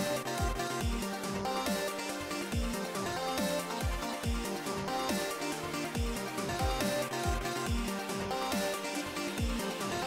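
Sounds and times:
kick drum beat: 2.6 - 2.8, 3.8 - 4.5, 6.0 - 7.9.

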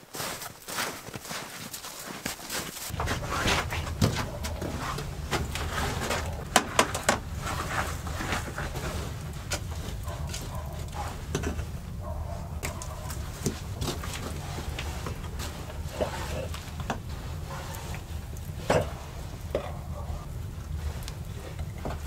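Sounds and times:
fire crackling: 1.8 - 22.0
shovel scraping ash and stones: 1.9 - 11.8, 12.6 - 19.6.

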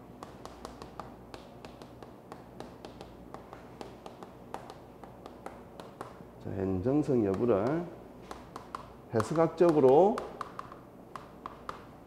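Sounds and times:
chalk writing on chalkboard: 0.2 - 6.2.

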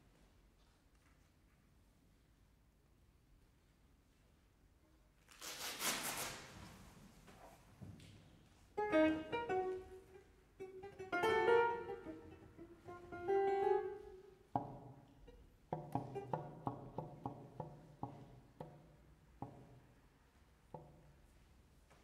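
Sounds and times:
chamber ensemble music: 8.8 - 14.8.

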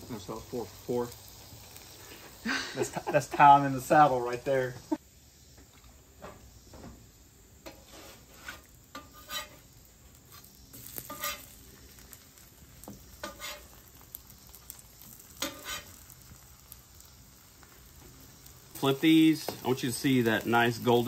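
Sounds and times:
food sizzling on a griddle: 0.0 - 21.0
metal spatula scraping griddle: 7.6 - 12.1, 12.9 - 14.1, 15.2 - 16.2.

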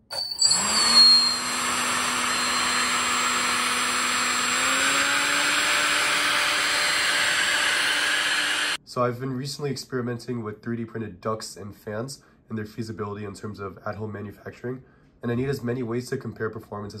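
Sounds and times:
ducted fan whine: 0.4 - 8.8.

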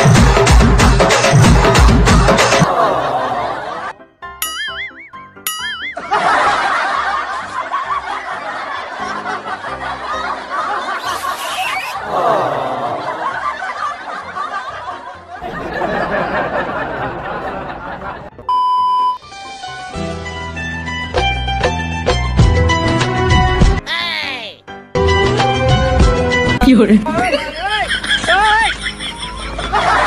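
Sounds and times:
crowd laughing and giggling: 1.6 - 4.0, 5.8 - 18.4, 27.0 - 30.0
test-pattern beep: 4.4 - 6.1.

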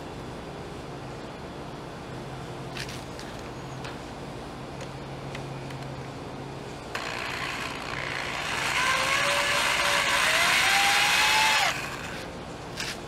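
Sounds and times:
electric drill driving screw: 7.0 - 12.3.

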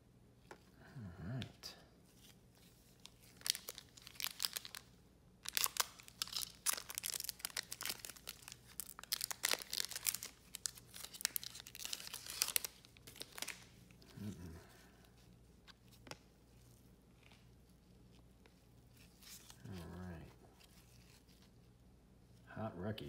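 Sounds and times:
foil wrapper crinkling and tearing: 2.9 - 14.7.

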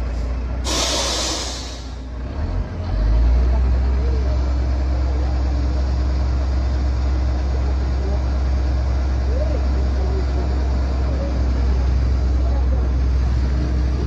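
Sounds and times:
diesel truck engine running: 0.0 - 14.0
air brakes hissing: 0.1 - 2.1.

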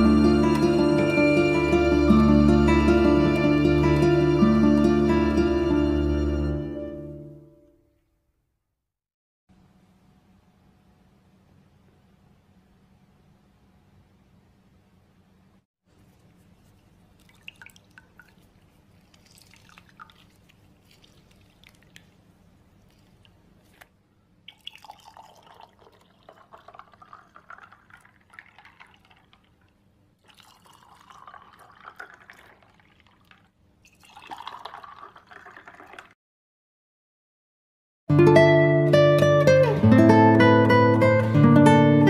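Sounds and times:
juice dripping into a jug: 16.3 - 36.2
juice pouring into glasses: 16.8 - 36.2.

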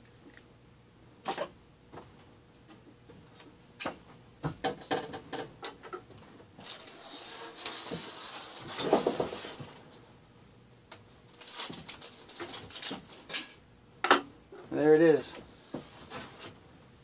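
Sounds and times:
vinyl wrap crackling: 6.6 - 10.1, 10.9 - 13.3.

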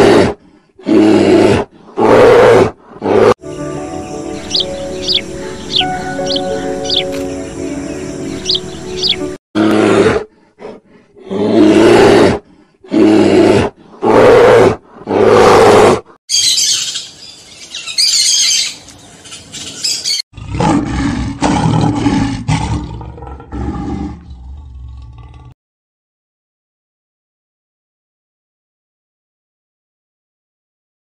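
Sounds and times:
peafowl calls: 3.4 - 9.4
high-pitched bird chatter: 3.6 - 9.4, 16.3 - 20.2
lion growling: 20.4 - 25.6.

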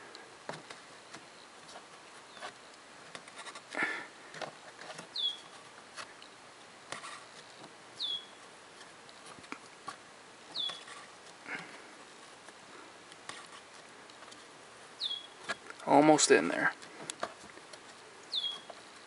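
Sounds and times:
clicks and rustles: 0.1 - 7.8, 8.4 - 14.6, 15.4 - 19.0
short high squeaks: 10.5 - 11.0, 18.3 - 18.7.

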